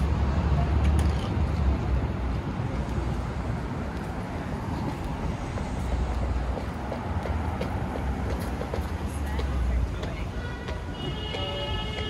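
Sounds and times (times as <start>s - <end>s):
passing vehicles: 0.0s - 12.0s.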